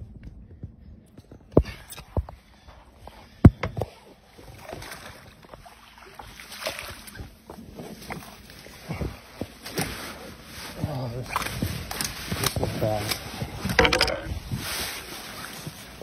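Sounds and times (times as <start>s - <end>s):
water splashing and sloshing: 2.4s - 16.0s.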